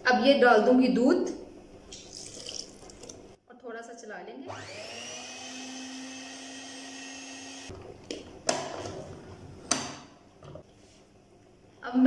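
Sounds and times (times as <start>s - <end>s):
stand mixer motor whine: 4.5s - 7.7s.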